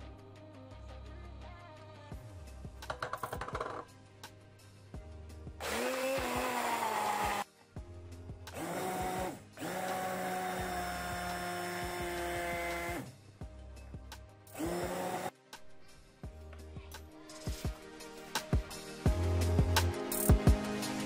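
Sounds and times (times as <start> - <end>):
electric stick blender whining: 5.6 - 7.4, 8.5 - 13.1, 14.5 - 15.3.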